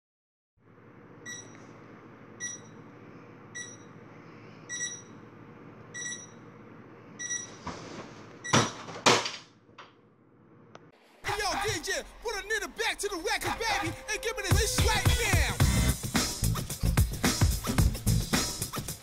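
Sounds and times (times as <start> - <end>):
alarm beeping: 2.4 - 2.8, 4.7 - 5.1, 6.0 - 6.4.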